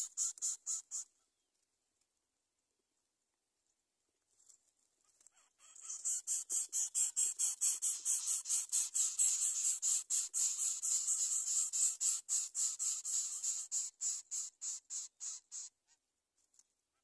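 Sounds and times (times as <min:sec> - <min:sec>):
nestlings hissing begging calls: 0:05.8 - 0:15.7.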